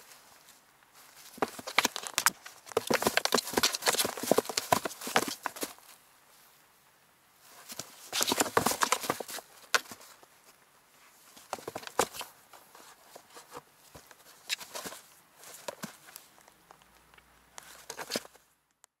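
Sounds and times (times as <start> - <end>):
paws knocking on cardboard box: 1.4 - 5.7, 8.2 - 10.0, 11.5 - 12.2
kitten claws scratching cardboard: 1.4 - 5.8, 7.7 - 10.1, 11.4 - 16.1, 17.6 - 18.4.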